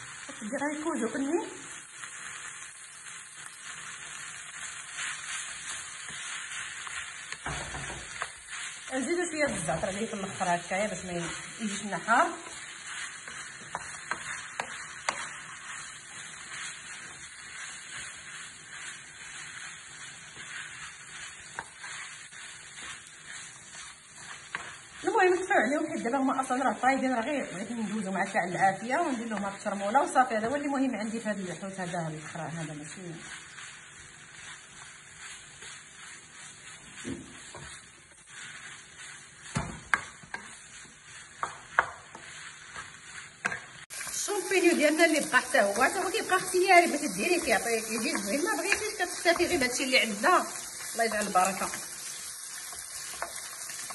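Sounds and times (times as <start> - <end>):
fish sizzling in a pan: 0.0 - 53.9
wooden spoon knocking pan: 41.4 - 42.3.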